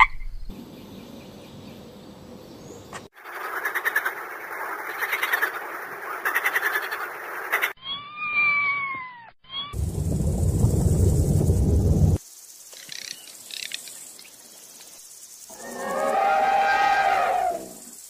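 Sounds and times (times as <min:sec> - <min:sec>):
loud low rumble: 0:09.8 - 0:12.2
long clear animal call: 0:15.5 - 0:17.8
chorus of pulsing animal calls: 0:15.5 - 0:18.0.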